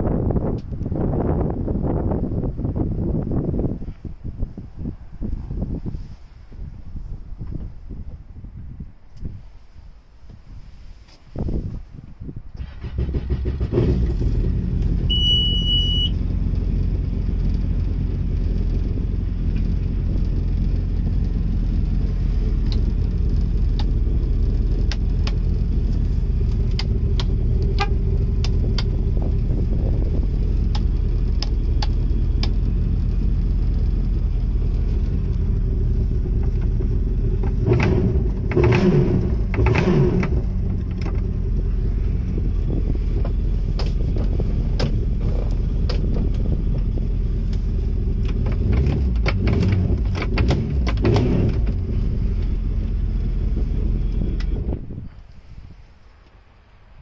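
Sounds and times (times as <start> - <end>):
short electronic beep: 15.1 - 16.2.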